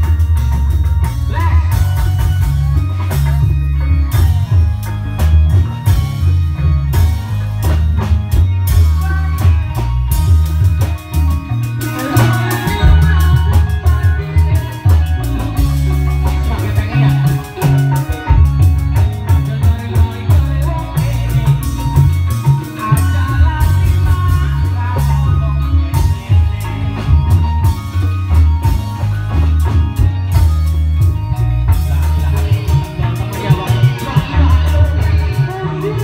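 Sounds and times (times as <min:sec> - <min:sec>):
drum beat: 0:00.0 - 0:36.0
heavy bass: 0:00.0 - 0:36.0
melody line: 0:00.0 - 0:36.0.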